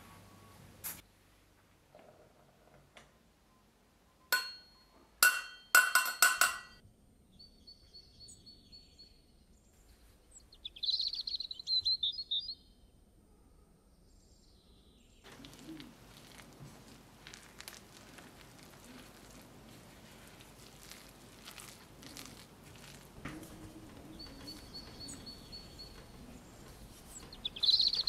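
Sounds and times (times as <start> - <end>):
metal cup clinking on glass bowl: 4.4 - 6.8
songbird trill: 7.3 - 9.7, 10.3 - 12.8, 23.6 - 28.0.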